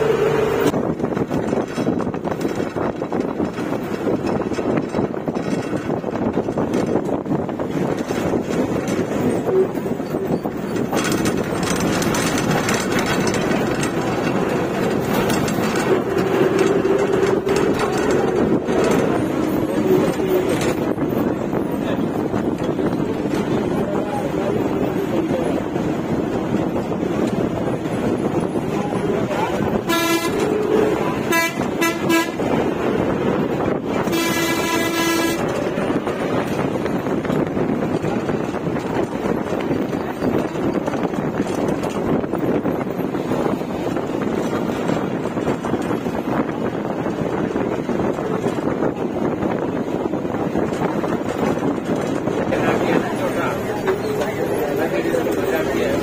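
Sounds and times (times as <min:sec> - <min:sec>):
bus engine and road noise: 0:00.0 - 0:56.0
vehicle horn honking: 0:29.8 - 0:32.5, 0:34.0 - 0:35.5.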